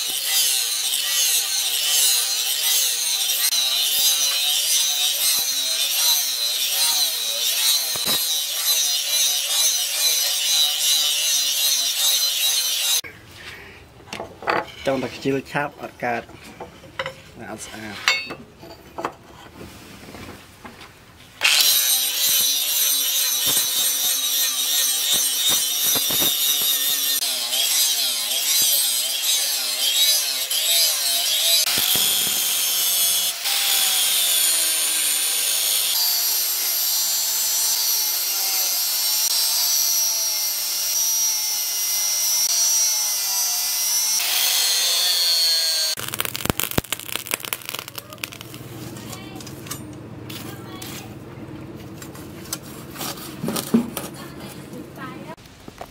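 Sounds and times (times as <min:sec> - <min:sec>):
angle grinder grinding steel: 0:00.0 - 0:13.1, 0:21.4 - 0:51.2.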